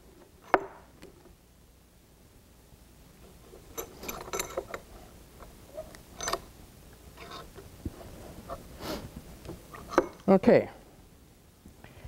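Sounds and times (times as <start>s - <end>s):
vise metallic clicks and rattles: 3.7s - 4.9s, 6.2s - 6.5s.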